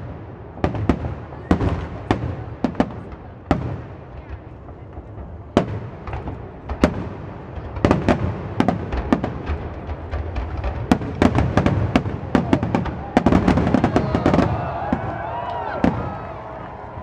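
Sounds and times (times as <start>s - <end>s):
firework bangs: 0.0s - 17.0s.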